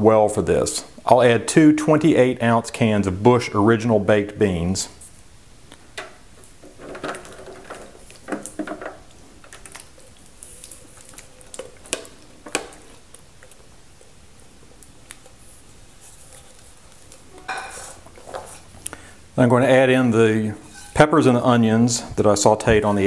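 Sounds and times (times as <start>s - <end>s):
cans tapping against pan: 6.0s - 9.6s.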